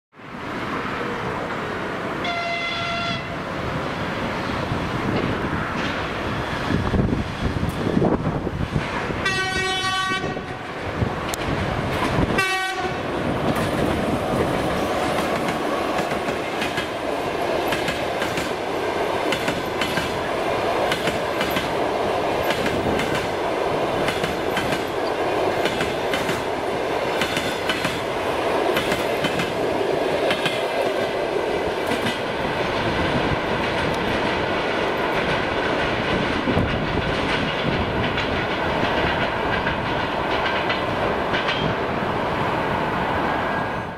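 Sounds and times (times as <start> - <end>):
train wheels clattering over rail joints: 13.3 - 29.6, 30.2 - 41.8.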